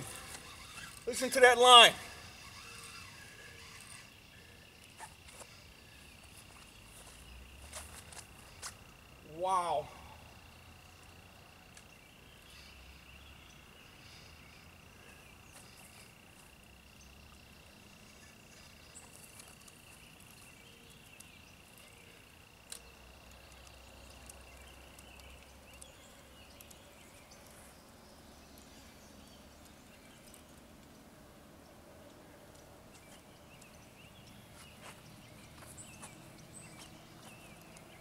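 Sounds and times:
high-pitched insect trill: 0:00.0 - 0:11.6.

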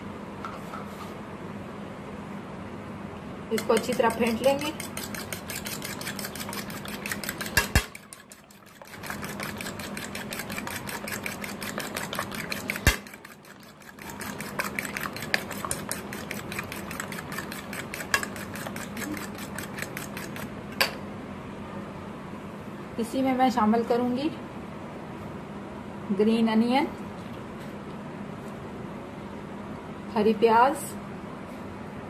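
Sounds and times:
spoon clicking against bowl: 0:03.5 - 0:13.2.

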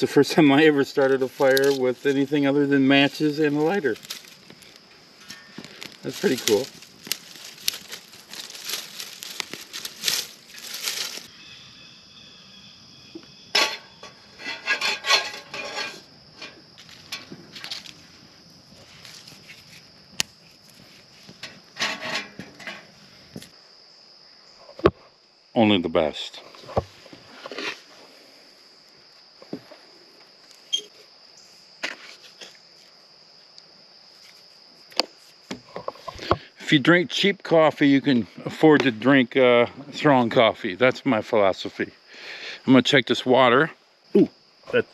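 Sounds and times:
high insect trill: 0:00.0 - 0:44.9
twigs crackling as they burn: 0:00.8 - 0:11.3, 0:14.5 - 0:23.6
twigs rustling: 0:00.8 - 0:11.4, 0:13.6 - 0:23.5
metal pot clattering and scraping: 0:05.2 - 0:05.9, 0:13.5 - 0:17.3, 0:21.4 - 0:23.0.

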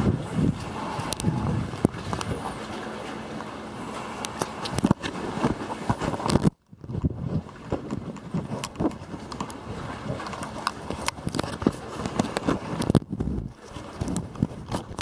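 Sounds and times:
wind buffeting microphone: 0:00.0 - 0:02.9, 0:04.5 - 0:15.0
handling rustles and clicks: 0:10.2 - 0:13.0.

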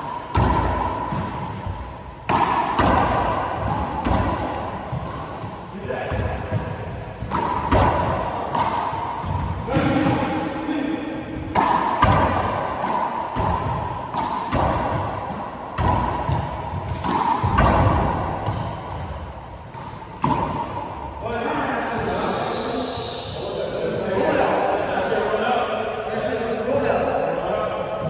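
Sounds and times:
handball smacking walls and floor: 0:00.0 - 0:10.4, 0:11.3 - 0:21.0.

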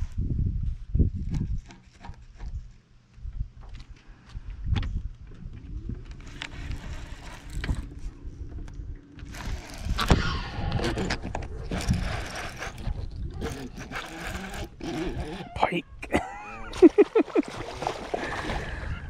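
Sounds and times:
steady hum: 0:02.2 - 0:19.0
fishing gear clicking and rattling: 0:06.0 - 0:08.1, 0:09.1 - 0:10.1, 0:10.9 - 0:15.5.

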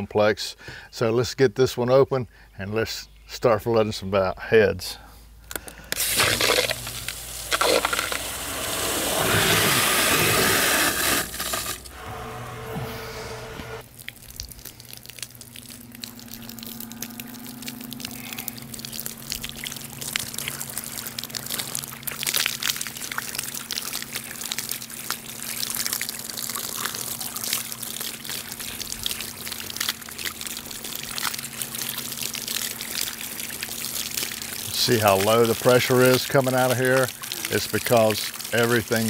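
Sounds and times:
steady low hum: 0:04.9 - 0:23.6
water splashing and trickling: 0:06.0 - 0:12.1, 0:13.8 - 0:39.0.

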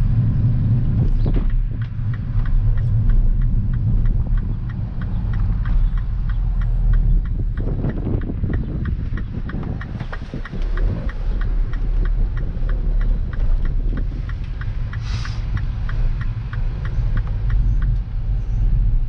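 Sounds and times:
engine and road rumble: 0:00.0 - 0:19.0
turn signal ticking: 0:00.0 - 0:19.0
brief hiss: 0:15.0 - 0:15.4.

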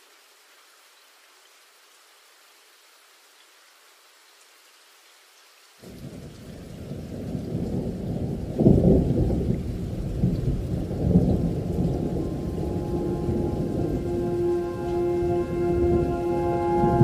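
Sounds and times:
rain: 0:00.0 - 0:17.0
thunder rumbling: 0:05.9 - 0:17.0.

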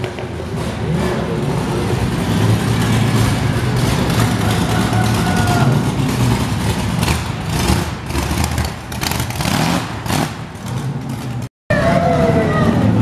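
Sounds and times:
drag car engine running: 0:00.4 - 0:11.4.

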